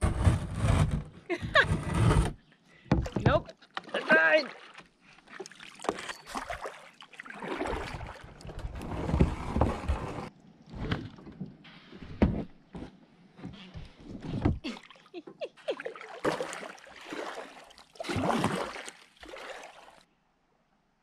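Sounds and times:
paddle strokes splashing: 3.0s - 8.8s, 14.7s - 20.0s.

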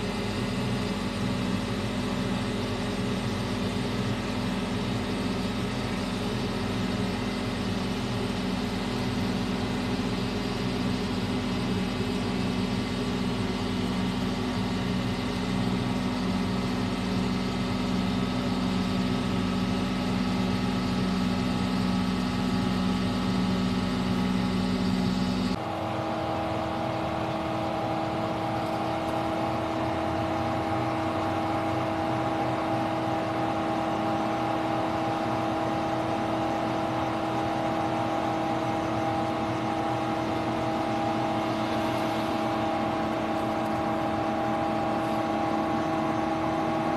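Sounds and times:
crane engine humming: 0.0s - 46.9s.

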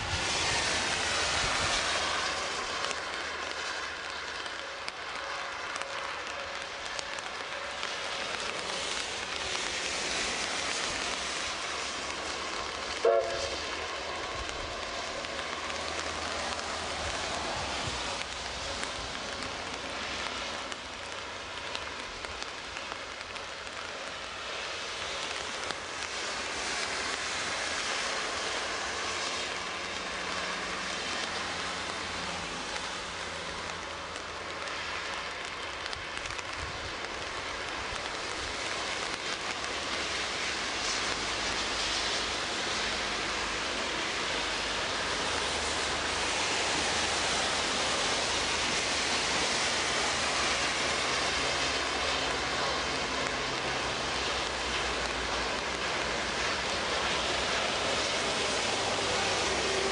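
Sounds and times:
steady hiss of rain: 0.0s - 59.9s
distant steam locomotive whistle: 13.0s - 13.6s.

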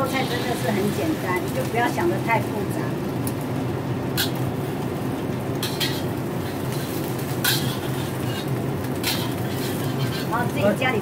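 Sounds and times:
metal spatula scraping a wok: 0.0s - 1.2s, 4.2s - 4.5s, 5.6s - 10.6s
steady low hum: 0.0s - 11.0s.

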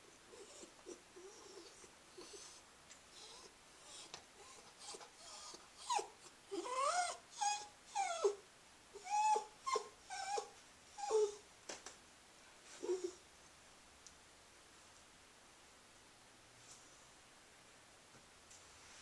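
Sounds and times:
dog whining: 0.3s - 8.4s, 9.0s - 11.4s, 12.8s - 13.2s.

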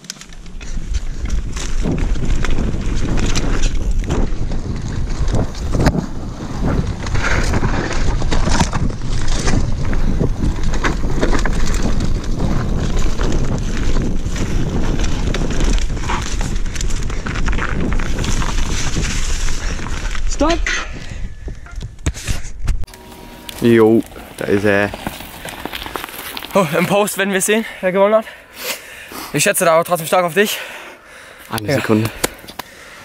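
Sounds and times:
bike rattling and knocking: 0.0s - 20.8s, 23.6s - 27.1s
bike tyres on dirt: 0.0s - 33.0s
wind buffeting microphone: 0.4s - 22.9s.

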